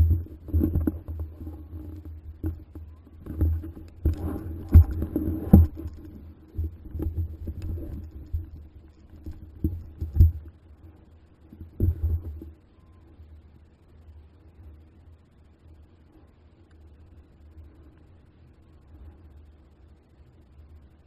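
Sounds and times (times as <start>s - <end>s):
heavy thumps over rough ground: 0.0s - 10.6s, 11.5s - 12.6s.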